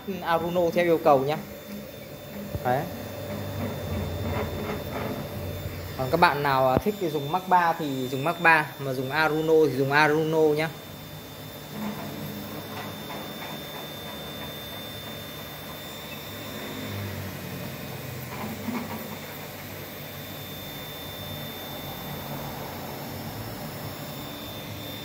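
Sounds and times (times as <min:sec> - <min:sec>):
stepper motors shifting pitch: 0:00.0 - 0:10.7
thin high whine: 0:00.0 - 0:25.0.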